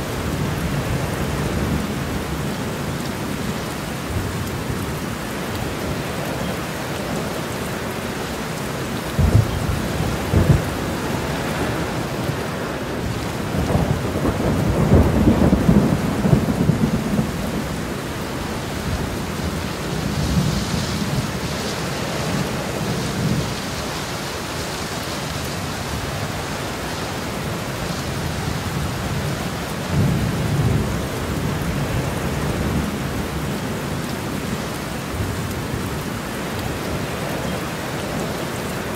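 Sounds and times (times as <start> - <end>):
steady rain: 0.0 - 38.9
thunder cracks and rumbles: 9.2 - 12.0, 13.5 - 17.9.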